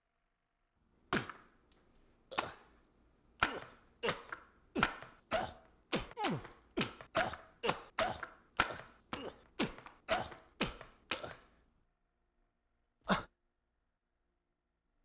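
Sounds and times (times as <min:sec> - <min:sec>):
hammer blows wet thunks: 0:01.1 - 0:01.5, 0:03.4 - 0:11.5.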